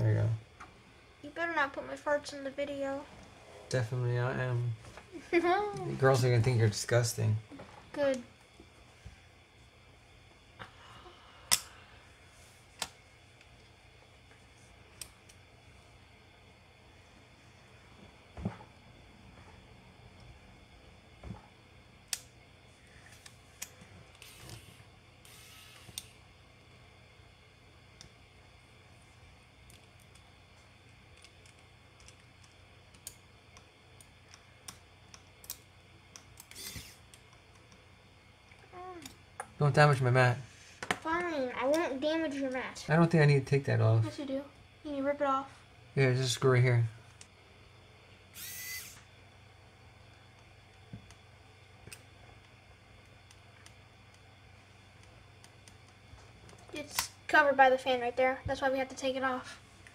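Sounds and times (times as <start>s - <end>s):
repair tool clicking: 48.4s - 49.0s.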